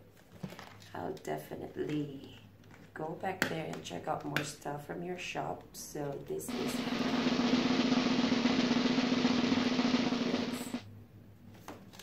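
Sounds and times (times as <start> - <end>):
snare drum roll: 6.5 - 10.9.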